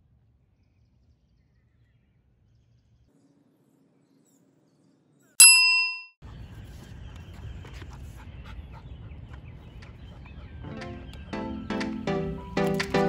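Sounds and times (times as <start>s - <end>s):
bright metallic ding: 5.4s - 6.1s.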